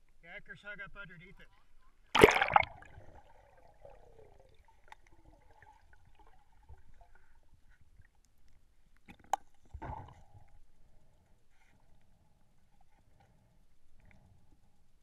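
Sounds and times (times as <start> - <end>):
loud water splash: 2.2 - 3.2.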